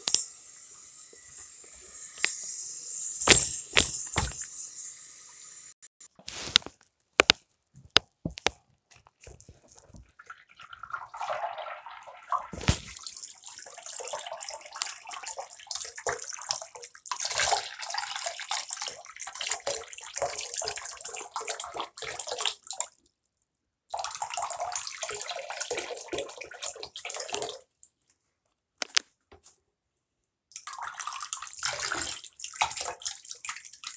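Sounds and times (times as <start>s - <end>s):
sharp knocks: 3.2s - 4.5s
tap water splashing into basin: 9.9s - 22.9s, 30.5s - 33.9s.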